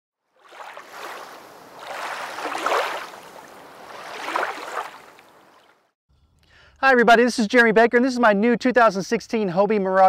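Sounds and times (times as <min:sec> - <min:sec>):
rushing water like waves: 0:00.3 - 0:05.9.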